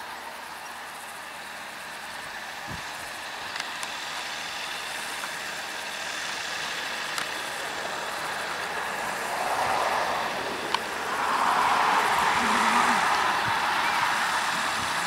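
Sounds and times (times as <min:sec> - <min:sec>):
tractor and baler running: 0:00.0 - 0:15.0
sharp clicks: 0:03.4 - 0:04.0, 0:07.0 - 0:07.6.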